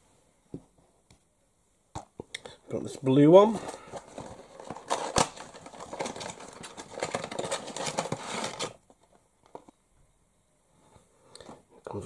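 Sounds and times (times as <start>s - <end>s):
packaging clicks and crinkles: 3.4s - 9.8s.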